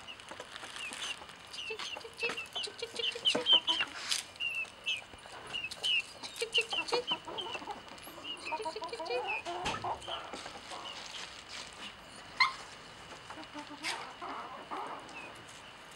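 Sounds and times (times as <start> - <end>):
chicks peeping: 0.0 - 15.7
lower chicken calls: 12.4 - 12.7.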